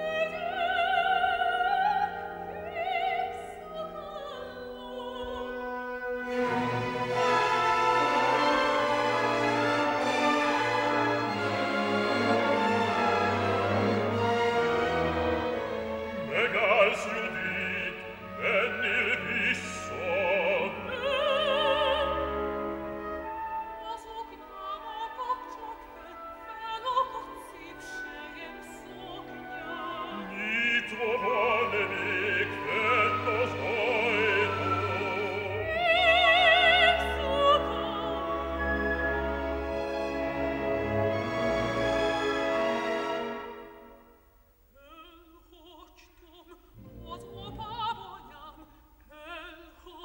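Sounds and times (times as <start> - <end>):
soprano singing opera: 0.0 - 6.6, 14.8 - 39.4, 44.8 - 50.0
orchestra playing: 0.0 - 44.2, 46.7 - 48.4
bass-baritone singing: 16.2 - 22.4, 28.9 - 38.5.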